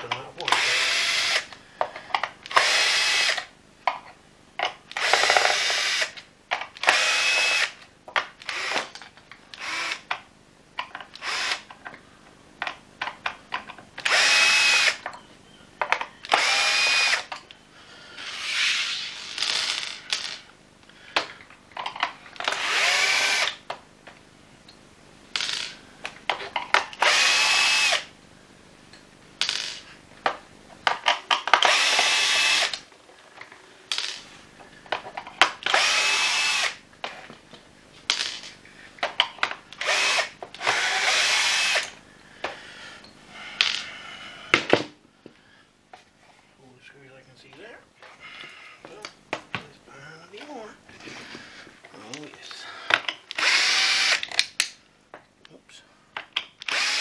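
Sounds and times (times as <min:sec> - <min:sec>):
clicks and knocks of parts: 0:12.6 - 0:14.1, 0:21.1 - 0:22.6, 0:28.9 - 0:35.8, 0:37.0 - 0:40.8, 0:51.8 - 0:53.5, 0:54.2 - 0:56.8
drill motor whine: 0:14.1 - 0:15.0, 0:16.2 - 0:17.2, 0:22.5 - 0:23.5, 0:27.0 - 0:28.1, 0:31.6 - 0:32.8, 0:35.7 - 0:36.8, 0:39.8 - 0:41.9, 0:53.4 - 0:54.2, 0:56.7 - 0:57.0.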